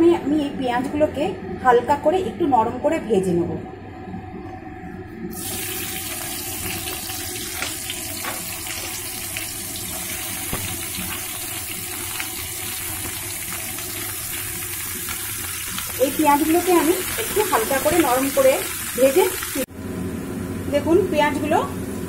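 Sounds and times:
onions sizzling in oil: 5.3 - 19.7.

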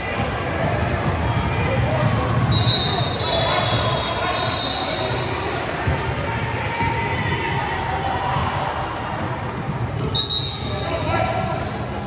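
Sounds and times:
basketball bouncing on court: 0.0 - 4.1, 5.0 - 11.7.

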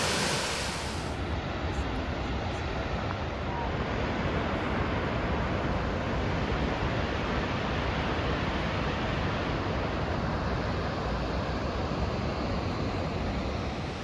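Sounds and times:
waterfall rushing: 0.0 - 1.2.

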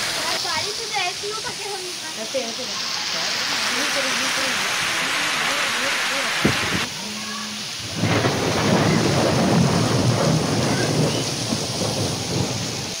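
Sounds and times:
heavy rain pouring: 0.0 - 13.0
low rolling thunder: 7.7 - 13.0.

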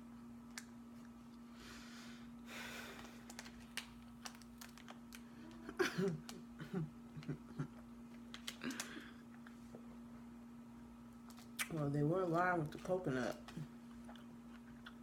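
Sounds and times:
steady low hum: 0.0 - 15.0
soft breathy laugh: 5.5 - 7.8.

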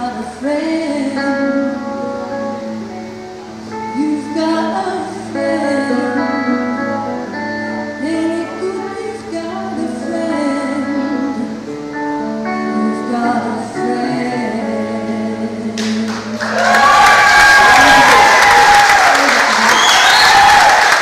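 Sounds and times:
woman singing: 0.0 - 2.9, 3.8 - 16.4
electric guitar: 0.0 - 21.0
audience applause: 15.8 - 21.0.

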